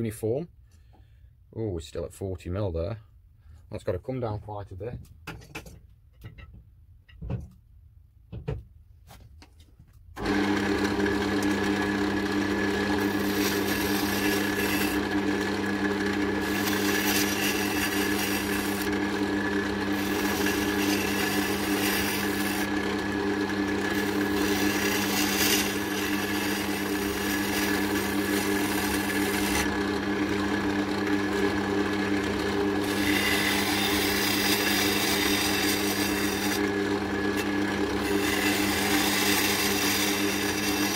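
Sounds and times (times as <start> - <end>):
turning tool scraping wood: 10.2 - 40.9
wood lathe motor hum: 10.2 - 40.9.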